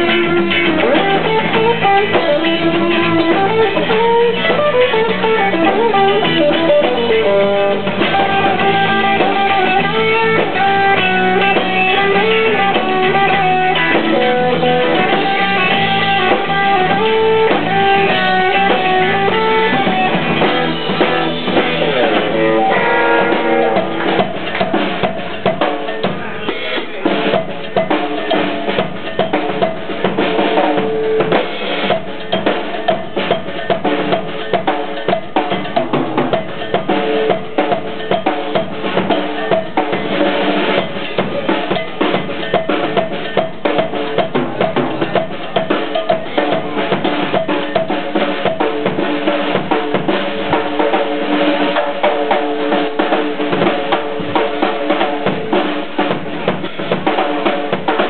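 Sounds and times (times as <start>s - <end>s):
electric guitar solo: 0.0s - 24.5s
drum solo: 0.0s - 58.0s
rock band playing: 0.0s - 58.0s.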